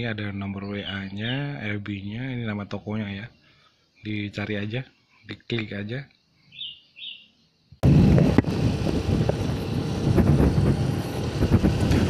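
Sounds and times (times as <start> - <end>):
motorcycle engine and road noise: 7.8 - 12.0
wind buffeting microphone: 7.8 - 12.0.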